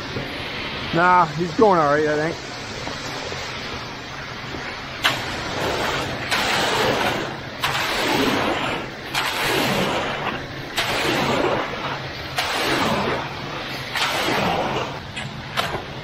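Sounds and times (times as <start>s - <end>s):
rake scraping wet concrete: 4.9s - 16.0s.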